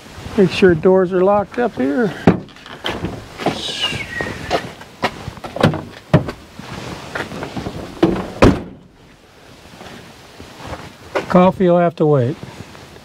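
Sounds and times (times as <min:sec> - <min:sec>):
door latches and locks clunking: 0:02.2 - 0:03.3, 0:07.6 - 0:09.0.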